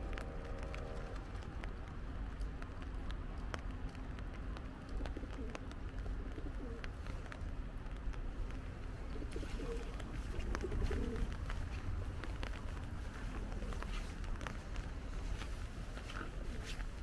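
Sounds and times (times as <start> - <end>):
low steady rumble: 0.0 - 17.0
rain dripping on umbrella: 0.0 - 17.0
bird cooing: 9.1 - 11.3.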